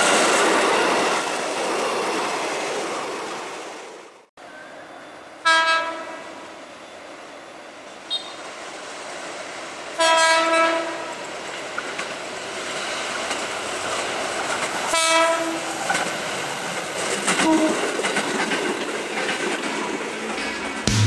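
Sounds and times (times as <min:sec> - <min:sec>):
train horn blasts: 0:05.4 - 0:06.3, 0:10.0 - 0:11.1, 0:14.9 - 0:15.6, 0:17.4 - 0:17.8
train wheels clickety-clack: 0:11.1 - 0:21.0.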